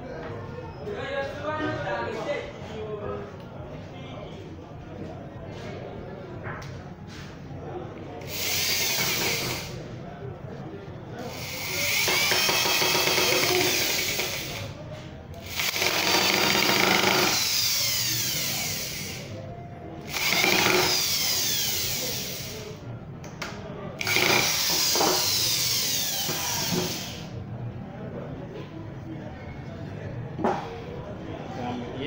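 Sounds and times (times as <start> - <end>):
electric drill boring into wood: 8.3 - 9.8, 11.3 - 14.6, 15.4 - 19.3, 20.1 - 22.6, 24.0 - 27.3.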